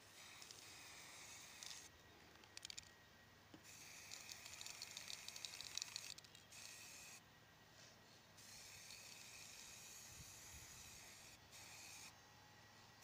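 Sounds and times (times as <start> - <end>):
spray can hissing: 0.2 - 1.8, 3.7 - 7.2, 8.4 - 12.1
spray can rattle: 0.2 - 1.9, 3.7 - 7.0, 8.4 - 12.0.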